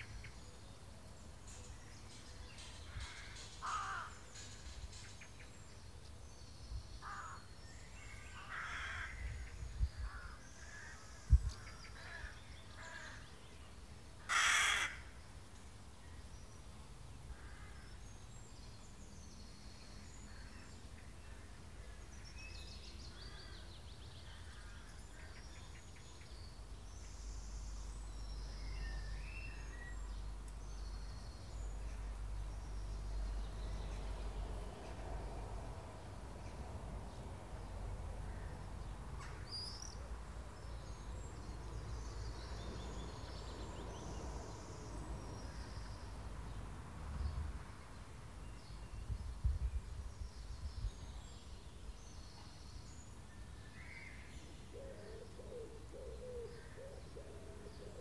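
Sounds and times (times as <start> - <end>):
birds calling: 1.5 - 5.5, 14.2 - 15.1
loud harsh bird call: 14.2 - 15.2.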